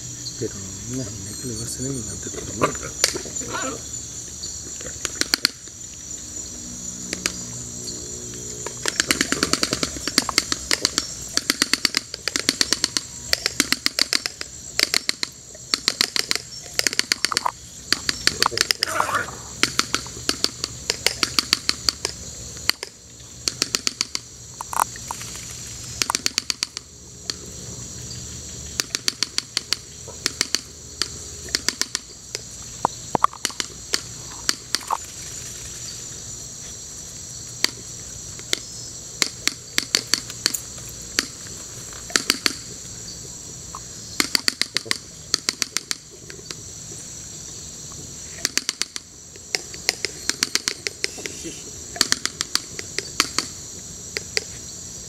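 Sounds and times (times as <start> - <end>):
rapid runs of sharp clicks: 8.7 - 18.9, 28.8 - 32.4, 44.2 - 46.0.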